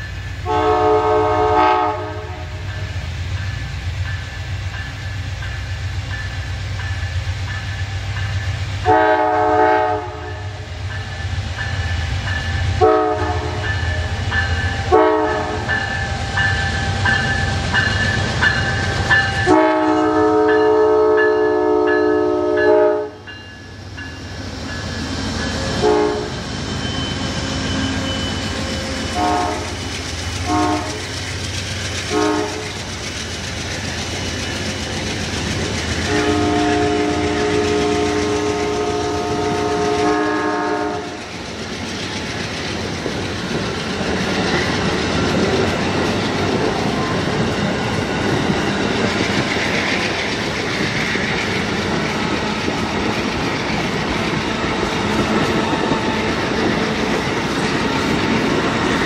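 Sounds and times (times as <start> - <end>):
train cars rumbling: 0.0 - 59.0
locomotive horn blasts: 0.4 - 2.6, 8.8 - 10.7, 12.8 - 14.2, 14.8 - 15.6, 19.4 - 23.2, 25.8 - 26.3, 29.1 - 29.8, 30.4 - 31.0, 32.1 - 32.7, 36.1 - 41.2.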